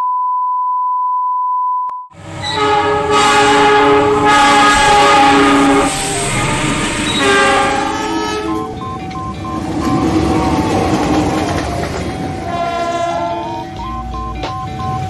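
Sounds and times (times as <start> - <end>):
steady test-pattern beep: 0.0 - 2.1, 8.1 - 11.1, 13.4 - 15.0
locomotive horn chords: 2.2 - 10.8, 12.3 - 13.9
train passing: 2.2 - 15.0.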